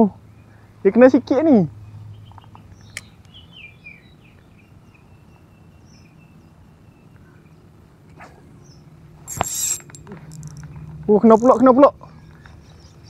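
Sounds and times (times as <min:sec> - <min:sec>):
faint bird chirps: 0:02.1 - 0:10.9.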